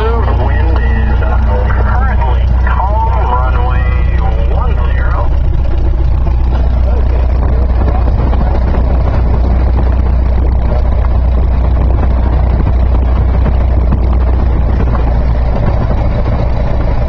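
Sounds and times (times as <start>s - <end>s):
propeller plane engine droning: 0.0s - 17.0s.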